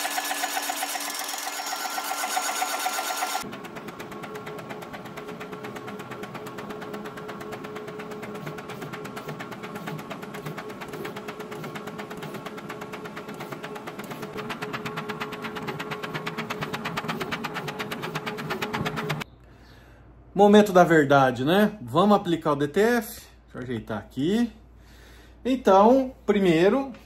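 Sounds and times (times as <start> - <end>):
machine chatter and hum: 0.0 - 19.2.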